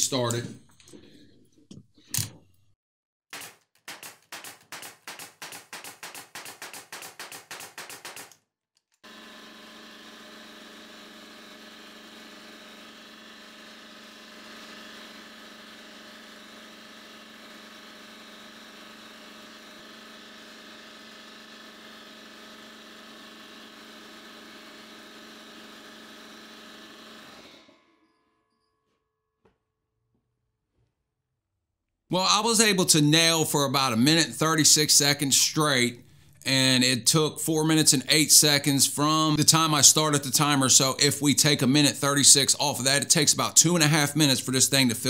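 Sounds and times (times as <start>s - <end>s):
pneumatic nailer firing: 3.4s - 8.4s, 9.0s - 27.9s
air compressor humming and hissing: 9.0s - 27.8s.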